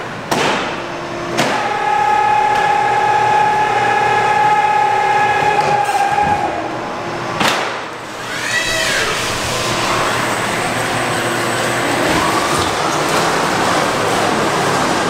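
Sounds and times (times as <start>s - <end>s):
electric drive whining: 7.9s - 15.0s.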